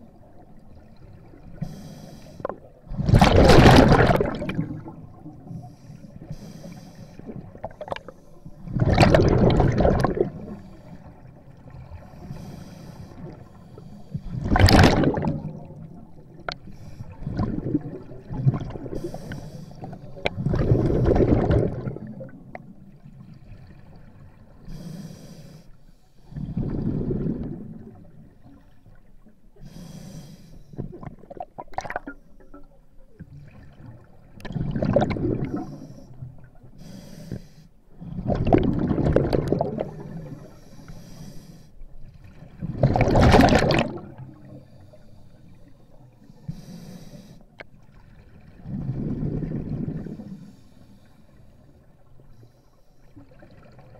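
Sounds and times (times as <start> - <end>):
regulator inhale hiss: 1.6 - 2.6, 5.5 - 7.3, 12.2 - 14.3, 18.9 - 20.0, 24.7 - 26.3, 29.6 - 30.8, 35.6 - 37.8, 39.9 - 41.8, 44.5 - 47.6, 50.2 - 51.5
rush of exhaled bubbles: 2.4 - 5.6, 7.2 - 12.4, 14.2 - 22.9, 26.3 - 28.7, 30.8 - 32.6, 33.3 - 36.5, 38.0 - 40.6, 42.2 - 44.8, 48.2 - 50.6.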